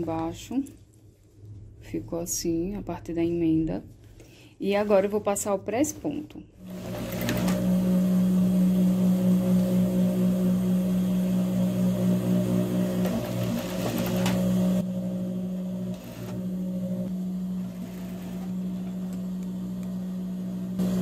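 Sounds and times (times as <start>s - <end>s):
sewing machine needle stitching: 6.6s - 7.7s, 13.0s - 14.6s
sewing machine motor humming: 6.6s - 21.0s.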